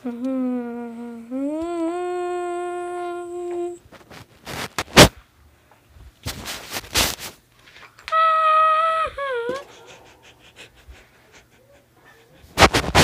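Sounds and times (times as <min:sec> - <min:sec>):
person humming a long note: 0:00.0 - 0:03.8, 0:08.1 - 0:09.8.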